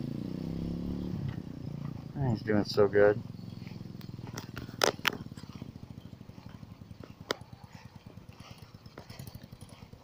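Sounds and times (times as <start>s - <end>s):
small motorcycle engine putter: 3.5s - 10.0s.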